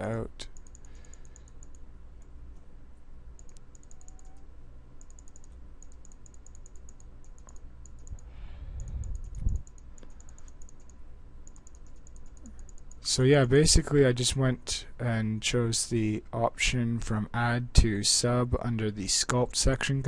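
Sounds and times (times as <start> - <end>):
computer clicking: 0.0 - 2.7, 3.4 - 13.1.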